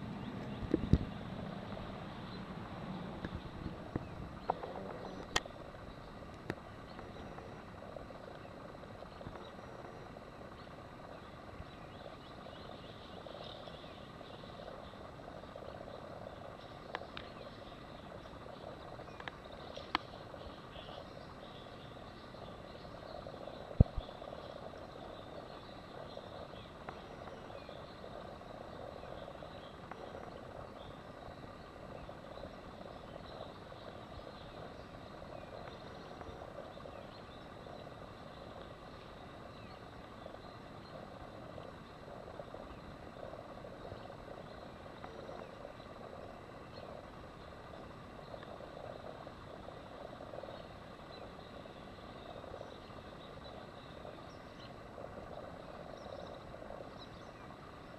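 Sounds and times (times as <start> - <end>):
outdoor background noise: 0.0 - 57.9.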